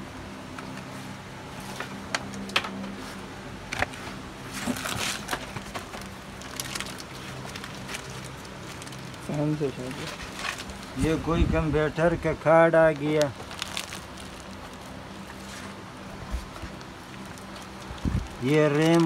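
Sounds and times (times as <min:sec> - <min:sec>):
items clicking and knocking together: 0:04.6 - 0:09.2
plastic packaging crinkling: 0:04.6 - 0:10.9, 0:13.0 - 0:15.6, 0:16.7 - 0:19.0.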